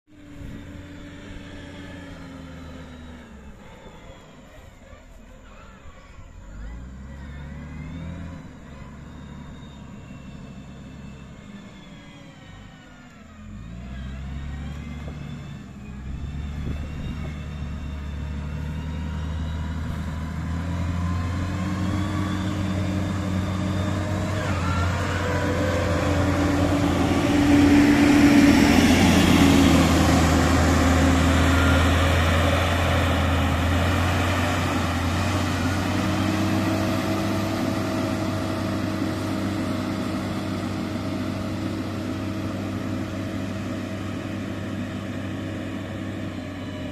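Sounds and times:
diesel engine running: 0.0s - 46.9s.

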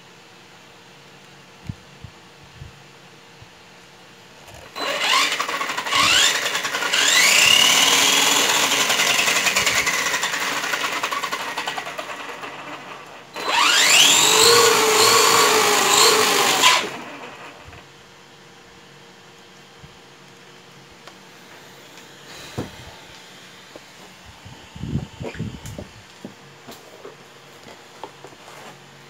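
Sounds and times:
electric motor whining: 4.5s - 17.8s.

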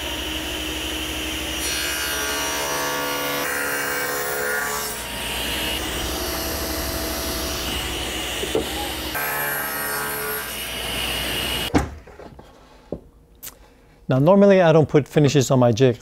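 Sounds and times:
table saw cutting wood: 0.0s - 11.7s.

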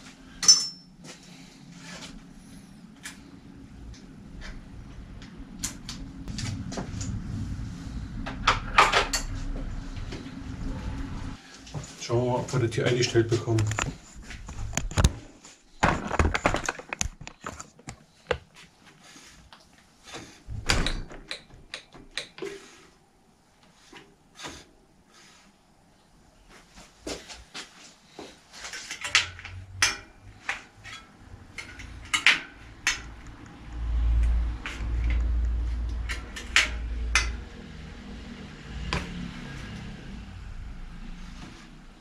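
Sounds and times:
low rumble: 3.4s - 11.4s
hand tool clicks and taps: 21.3s - 22.4s.

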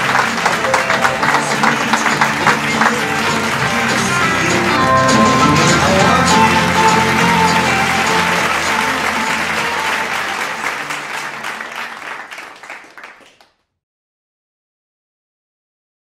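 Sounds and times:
closing music: 0.0s - 12.0s
applause: 0.0s - 13.8s.

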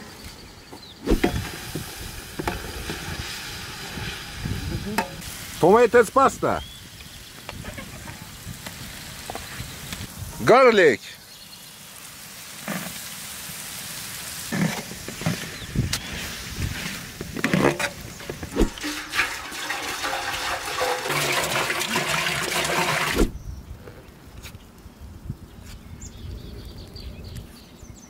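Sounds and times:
vegetables sizzling in a pan: 1.1s - 17.4s
metal ladle scraping a pan: 16.8s - 23.1s.

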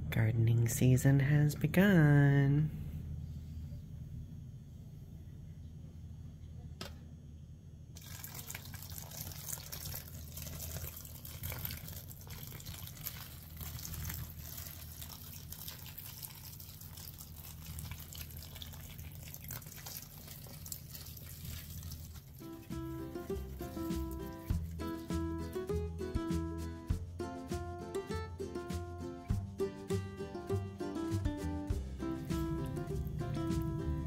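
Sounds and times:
water trickling onto peat: 8.0s - 25.7s.

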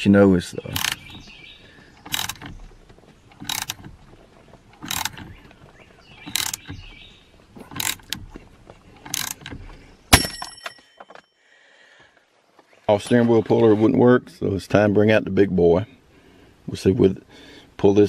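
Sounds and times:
ratchet wrench ratcheting: 0.8s - 1.0s, 2.0s - 2.5s, 3.4s - 3.9s, 4.8s - 5.4s, 6.2s - 6.7s, 7.6s - 8.2s, 9.1s - 9.6s
sharp metallic clank: 10.1s - 11.2s.

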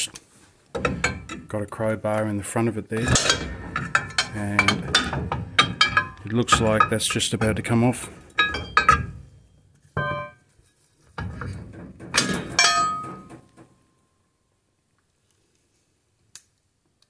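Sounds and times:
ringing metal clangs: 3.0s - 10.5s, 12.1s - 13.7s.

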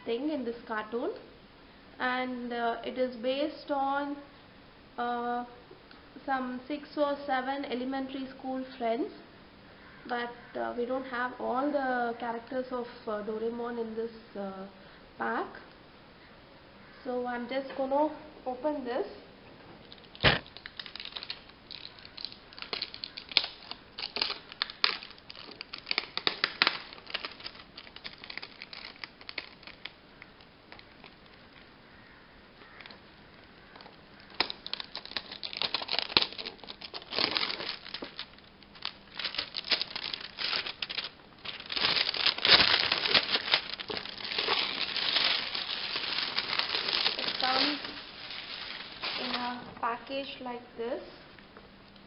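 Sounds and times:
plastic crinkling and crackling: 19.8s - 31.8s, 33.6s - 49.8s.

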